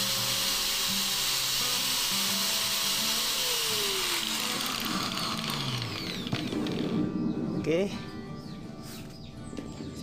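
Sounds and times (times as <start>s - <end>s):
angle grinder whining: 0.0s - 6.9s
background music: 0.3s - 10.0s.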